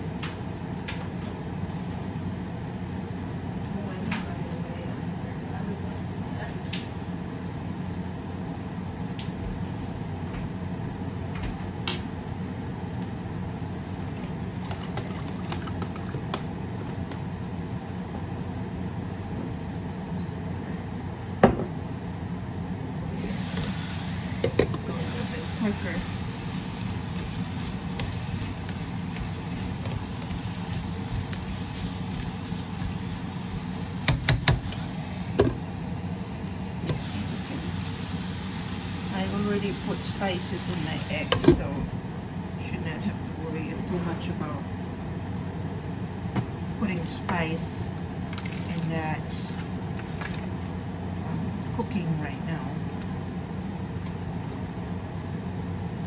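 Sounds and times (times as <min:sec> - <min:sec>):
pan steaming hum and hiss: 0:23.1 - 0:35.6, 0:36.7 - 0:41.8.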